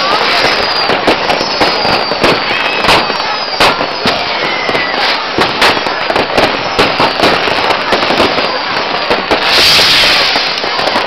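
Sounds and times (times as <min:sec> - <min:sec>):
firecrackers crackling: 0:00.0 - 0:11.0
firework hiss: 0:00.0 - 0:11.0
fireworks banging: 0:00.0 - 0:11.0.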